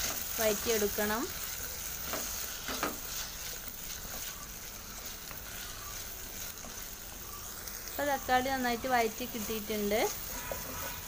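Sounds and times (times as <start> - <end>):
vegetables sizzling in oil: 0.0 - 11.0
wooden spatula scraping pan: 9.2 - 11.0.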